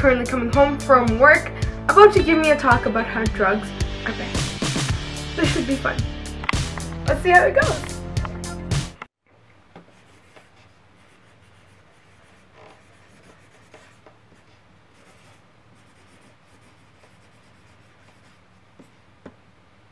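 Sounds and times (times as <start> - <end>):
marker scratching on paper: 9.8 - 19.0.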